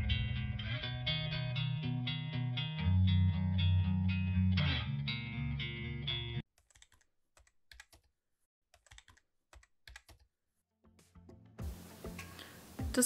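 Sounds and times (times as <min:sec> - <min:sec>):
guitar intro music: 0:00.0 - 0:06.4, 0:10.9 - 0:13.0
keyboard typing clicks: 0:06.6 - 0:08.1, 0:08.8 - 0:10.2.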